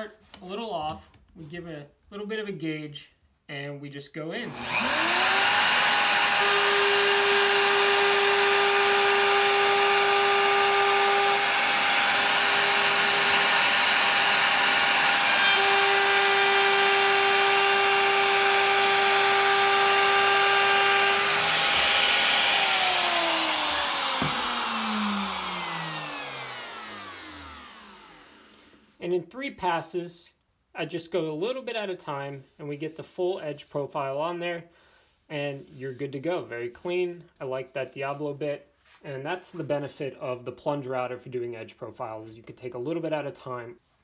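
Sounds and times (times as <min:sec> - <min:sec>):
router bit cutting wood: 0:04.4 - 0:28.9
router winding down: 0:04.4 - 0:28.9
router whining: 0:04.4 - 0:29.0.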